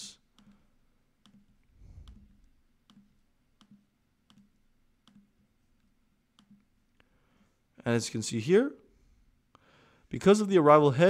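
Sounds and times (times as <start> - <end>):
faint clicks: 0.3 - 7.1.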